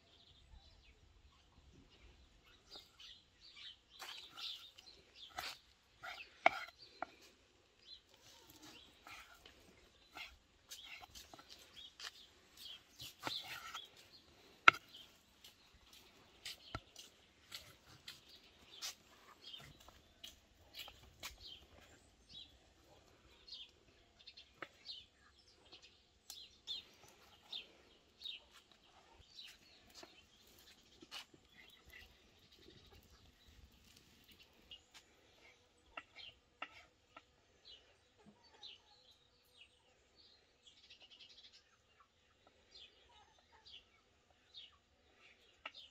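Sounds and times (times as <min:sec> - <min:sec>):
birds chirping: 0:00.0 - 0:45.9
knife slicing meat on board: 0:05.3 - 0:06.7, 0:14.6 - 0:15.0.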